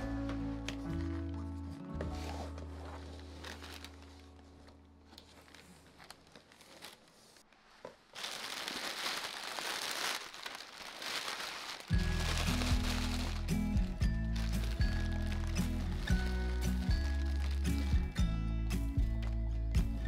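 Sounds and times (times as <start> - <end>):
background music: 0.0 - 5.5, 11.9 - 20.0
packaging crinkling: 3.0 - 18.2.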